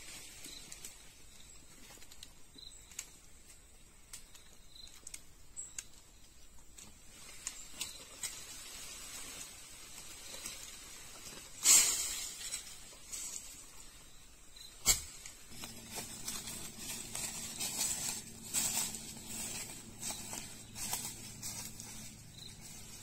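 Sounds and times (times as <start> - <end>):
rustling of people climbing a tree: 0.0 - 23.0
leaves shaking: 6.8 - 14.0, 14.6 - 23.0
shoes and hands on bark: 14.8 - 23.0.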